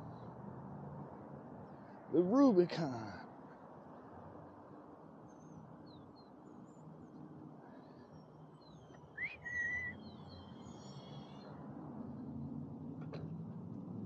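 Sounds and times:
bird chirps: 5.3s - 11.5s
rising bird whistle: 8.7s - 11.5s
wind and tyre rumble: 11.4s - 14.0s.

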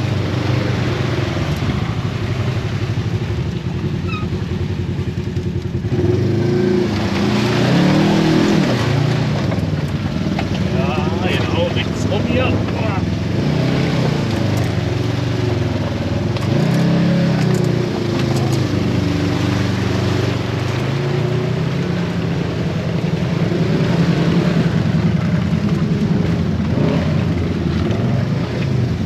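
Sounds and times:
off-road vehicle engine revving: 0.0s - 29.0s.

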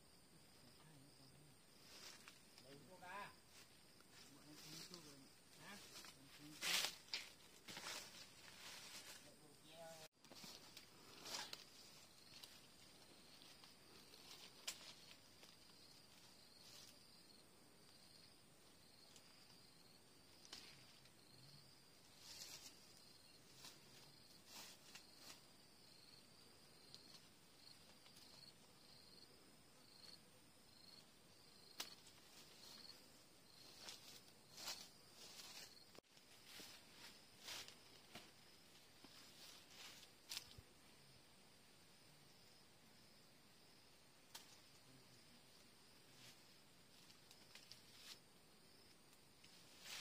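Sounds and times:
insects chirping: 0.0s - 50.0s
leaves rustling and twigs snapping: 5.6s - 9.3s, 10.2s - 17.0s, 20.3s - 21.1s, 23.6s - 25.4s, 31.6s - 32.9s, 33.6s - 40.6s, 44.3s - 44.8s, 46.2s - 48.2s.

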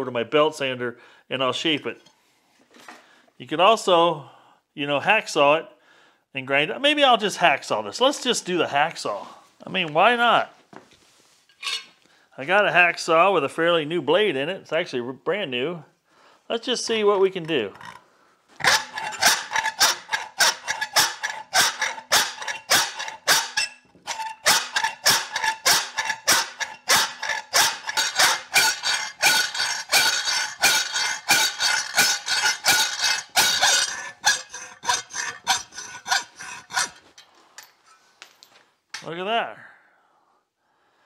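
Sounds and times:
hacksaw cutting metal: 18.6s - 37.1s.

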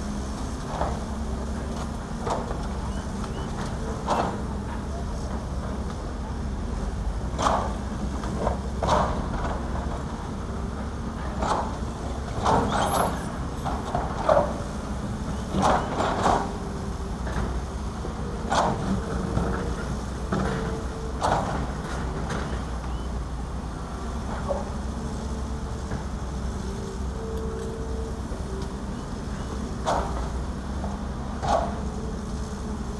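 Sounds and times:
diesel engine drone: 0.0s - 32.9s.

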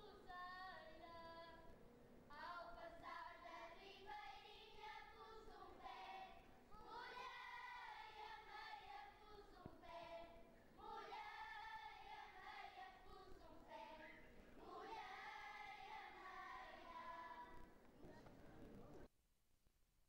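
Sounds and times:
children's choir singing: 2.5s - 17.7s.

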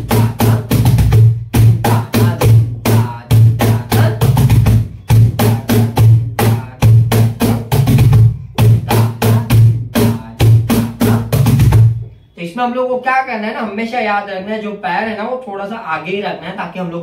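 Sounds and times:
cajon played by hand: 0.0s - 12.1s.

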